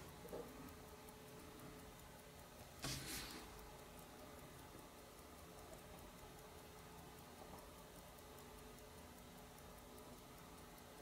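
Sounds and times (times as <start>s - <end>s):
mechanical watch ticking: 0.0s - 11.0s
tweezers rustling scrape: 2.8s - 3.4s.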